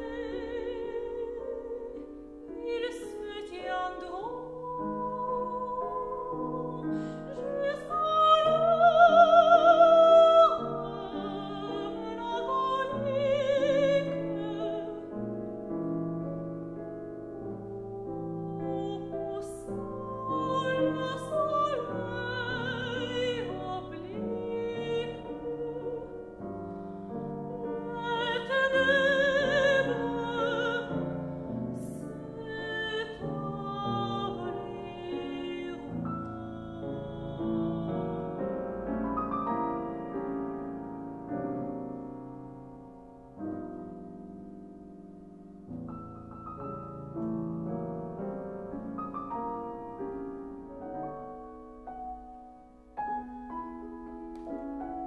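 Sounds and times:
soprano singing with vibrato: 0.0s - 15.3s, 17.7s - 39.9s
piano accompaniment: 0.0s - 55.0s.

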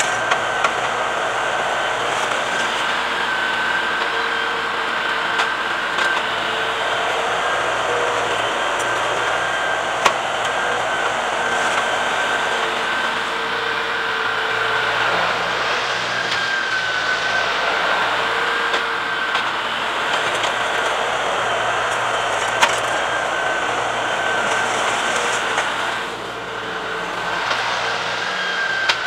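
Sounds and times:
high whine: 0.0s - 29.0s
tractor diesel engine running: 0.0s - 29.0s.

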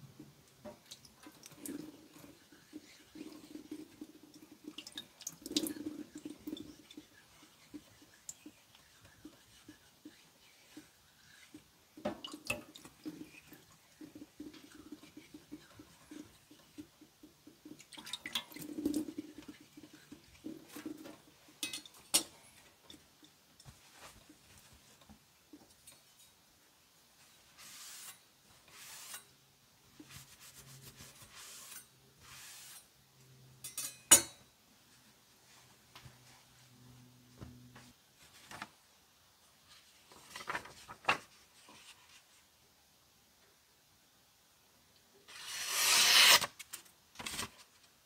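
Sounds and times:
knife scraping on whetstone: 27.7s - 29.3s, 45.3s - 46.5s.

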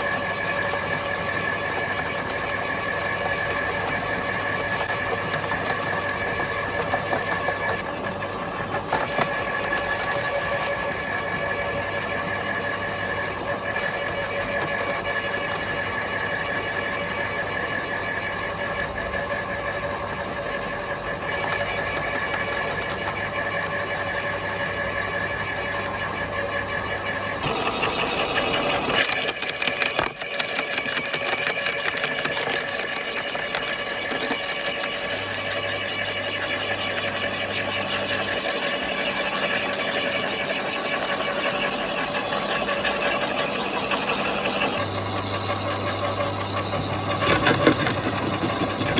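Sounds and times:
electric garden shredder running: 0.0s - 48.9s
wood cracking and snapping: 29.0s - 35.7s.

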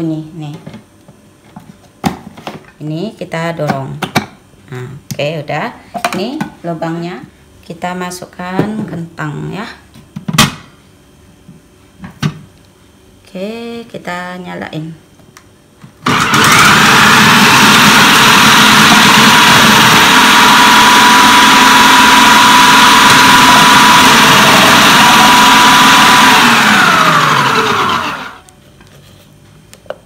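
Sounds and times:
food processor motor whining: 16.0s - 28.5s.

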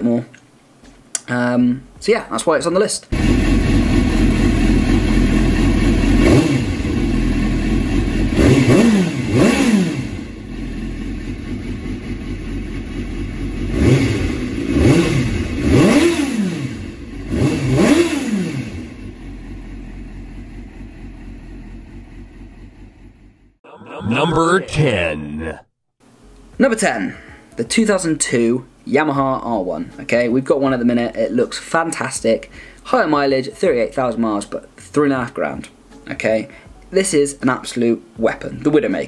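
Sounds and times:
motorcycle engine idling: 3.2s - 6.2s, 6.8s - 8.4s, 10.3s - 13.7s, 18.8s - 23.5s.

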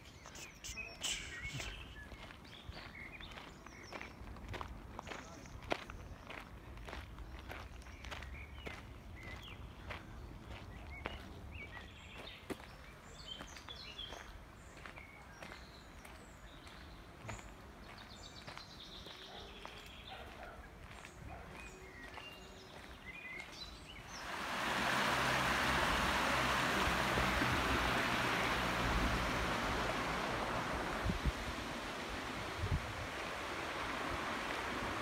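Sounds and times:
birds chirping: 0.0s - 4.2s, 7.4s - 35.0s
loud steady rushing noise: 24.2s - 35.0s.

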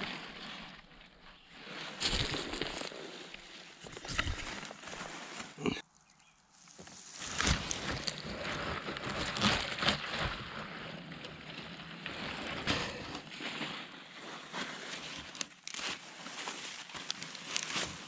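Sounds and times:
grass and leaves rustling: 0.0s - 18.0s.

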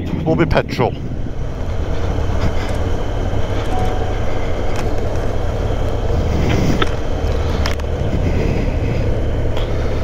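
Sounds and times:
road and wind noise: 0.0s - 10.0s
motorcycle engine rumble: 1.0s - 10.0s.

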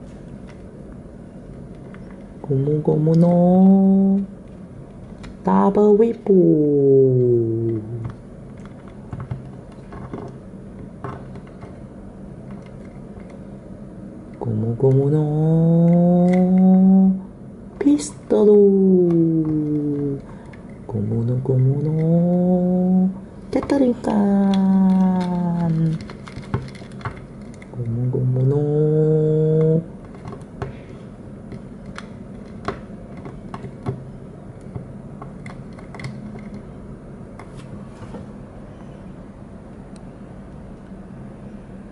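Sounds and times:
steady low hum: 0.0s - 41.9s
plastic figure limbs clicking: 14.9s - 16.9s, 34.6s - 36.7s
plastic toy clicking and knocking: 24.5s - 27.8s, 31.5s - 34.0s, 34.6s - 36.7s.

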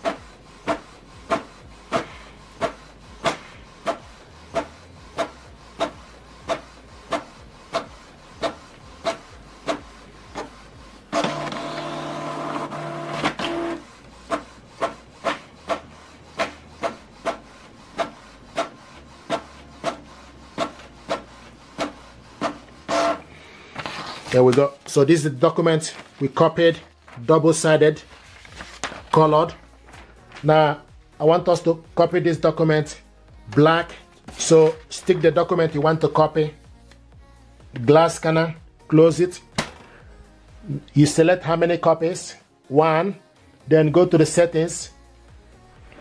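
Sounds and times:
printer motor whirring: 0.0s - 24.4s
printer carriage sweeping and clicking: 0.0s - 27.6s, 33.5s - 36.2s.

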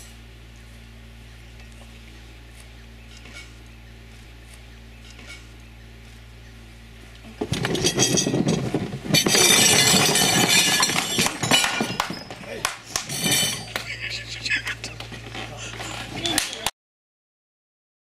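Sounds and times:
knocks scraping and rustling: 7.2s - 14.1s, 14.9s - 16.4s.

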